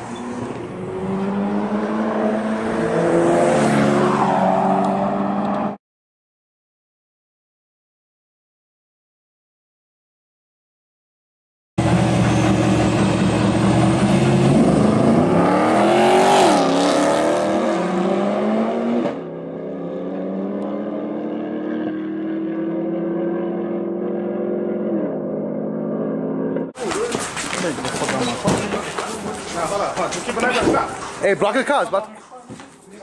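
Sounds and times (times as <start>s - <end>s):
car engines revving and accelerating: 0.0s - 5.8s, 11.8s - 26.8s
engine drone: 11.8s - 26.7s.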